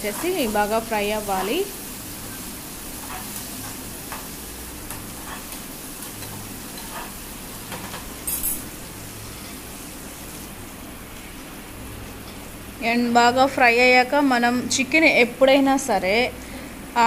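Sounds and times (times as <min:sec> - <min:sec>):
vegetables sizzling in hot oil: 0:00.0 - 0:13.5
metal spoon scraping pan: 0:06.2 - 0:07.2.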